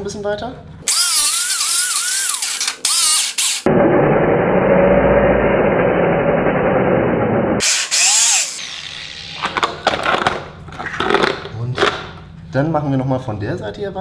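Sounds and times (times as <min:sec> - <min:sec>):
angle grinder cutting: 0:00.9 - 0:03.7, 0:07.6 - 0:10.3.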